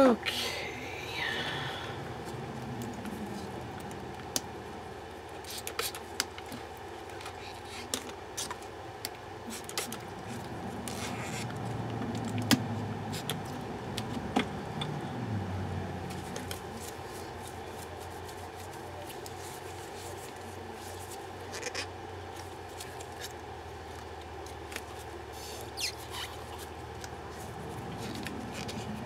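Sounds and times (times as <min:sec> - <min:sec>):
low steady hum: 0:00.0 - 0:29.0
rubbing and handling noises: 0:16.0 - 0:29.0.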